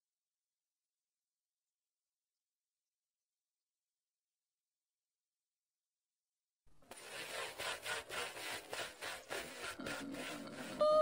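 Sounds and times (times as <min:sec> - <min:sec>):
rhythmic scraping: 0:06.9 - 0:11.0
high voice-like tone: 0:10.7 - 0:11.0.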